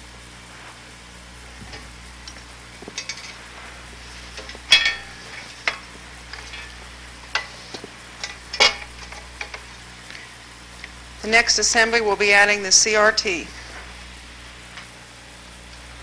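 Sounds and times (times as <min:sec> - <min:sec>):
low hum: 0:00.0 - 0:16.0
steady hiss: 0:00.0 - 0:16.0
metal clicks and clanks: 0:02.3 - 0:03.4, 0:04.4 - 0:09.6.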